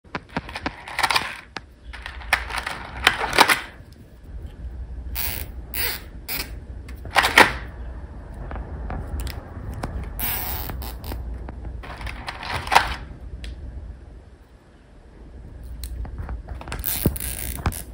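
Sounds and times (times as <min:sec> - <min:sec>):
faint low hum: 0:00.1 - 0:17.9
plastic zip ties rattling: 0:16.7 - 0:17.9
zip ties zipping through locks: 0:16.8 - 0:17.9.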